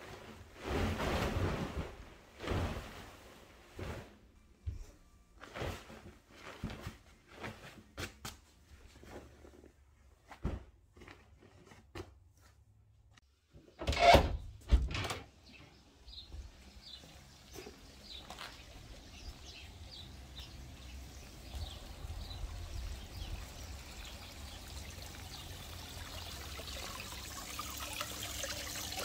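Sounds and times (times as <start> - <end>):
bedding rustling: 0.0 - 11.7
door opening: 13.8 - 15.3.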